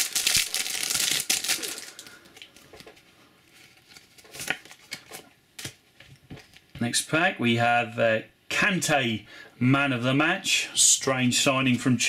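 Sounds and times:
foil wrapper crinkling: 0:00.0 - 0:05.2.

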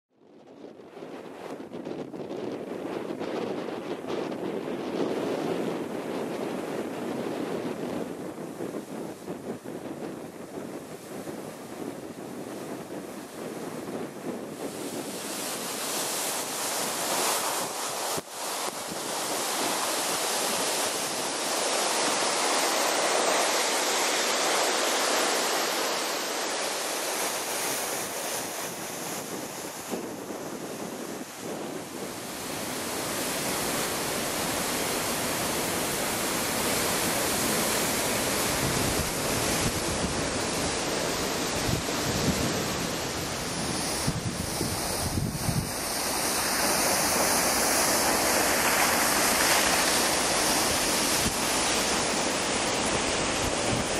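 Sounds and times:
wind buffeting microphone: 0:00.4 - 0:53.9
rush of falling water: 0:14.8 - 0:53.9.

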